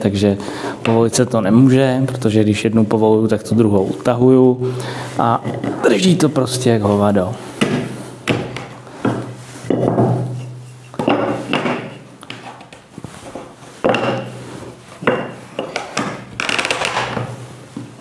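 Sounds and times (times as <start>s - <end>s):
wood scraping on wood: 6.8s - 18.0s.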